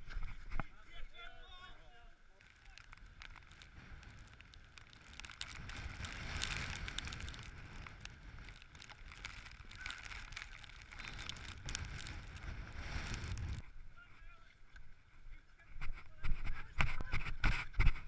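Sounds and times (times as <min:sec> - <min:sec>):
small irregular clicks and taps: 0:02.4 - 0:13.6
wind rumble on microphone: 0:02.7 - 0:13.8, 0:15.8 - 0:18.0.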